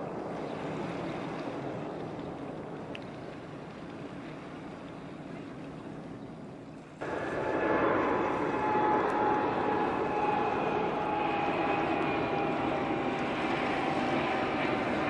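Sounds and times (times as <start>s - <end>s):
wind and water rushing: 0.0s - 15.0s
engine drone with whine: 7.0s - 15.0s.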